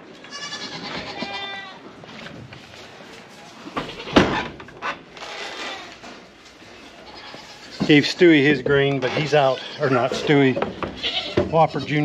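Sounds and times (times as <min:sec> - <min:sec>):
sharp knocks and clunks: 0:10.0 - 0:11.6.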